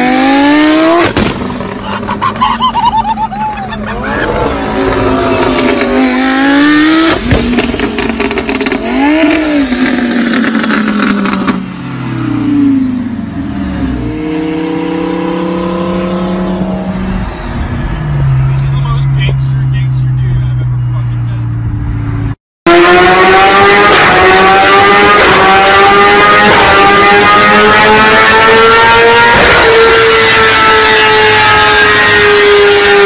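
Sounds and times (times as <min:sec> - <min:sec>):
sports car engine revving: 0:00.0 - 0:02.2, 0:03.8 - 0:33.0
exhaust popping and crackling: 0:01.0 - 0:11.6, 0:16.3 - 0:20.6.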